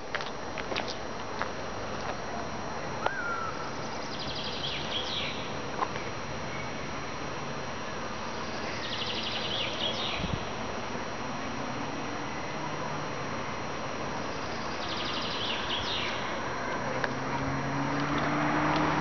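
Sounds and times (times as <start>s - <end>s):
outdoor background noise: 0.0s - 19.0s
songbird trilling: 3.1s - 5.5s, 8.7s - 10.3s, 14.8s - 16.2s.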